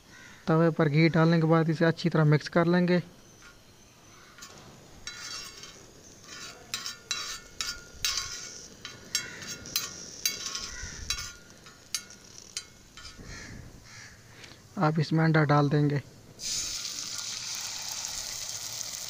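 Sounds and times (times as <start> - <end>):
metal utensil scraping griddle: 3.4 - 13.7.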